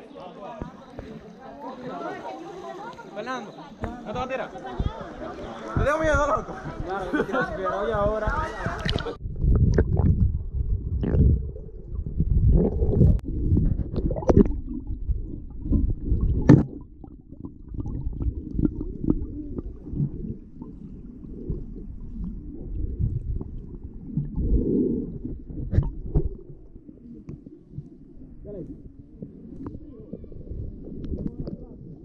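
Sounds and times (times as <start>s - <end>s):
water rumbling underwater: 3.8s - 32.0s.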